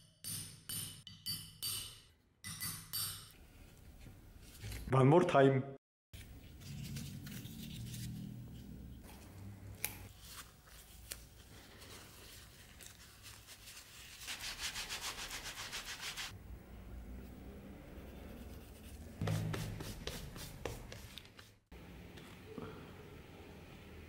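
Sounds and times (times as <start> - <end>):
cloth rubbing on leather: 19.2 - 21.6.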